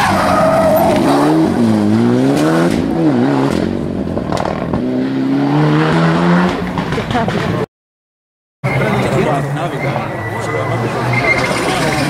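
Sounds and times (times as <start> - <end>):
car engine revving: 0.0 - 7.7.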